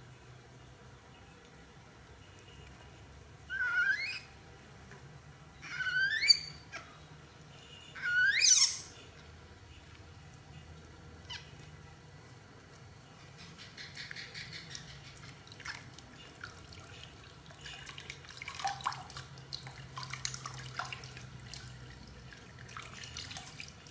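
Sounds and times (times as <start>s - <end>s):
baby monkey crying: 3.5s - 4.3s, 5.6s - 7.0s, 8.0s - 8.9s.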